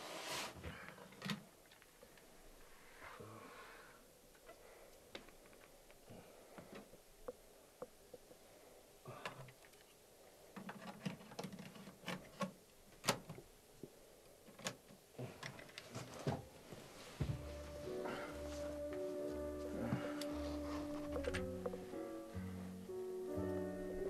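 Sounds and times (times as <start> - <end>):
clicks and knocks of handling: 10.5 - 13.5, 14.4 - 16.4.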